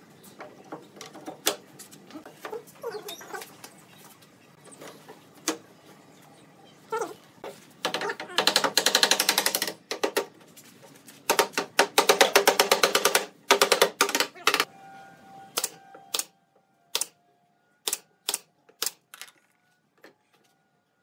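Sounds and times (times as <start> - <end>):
nail gun shots: 16.9 - 17.1, 17.9 - 19.0.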